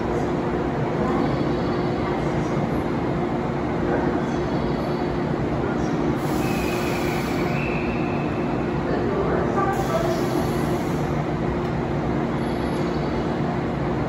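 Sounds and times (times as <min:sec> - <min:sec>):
continuous rushing noise: 0:00.0 - 0:14.0
electric train equipment humming: 0:00.0 - 0:14.0.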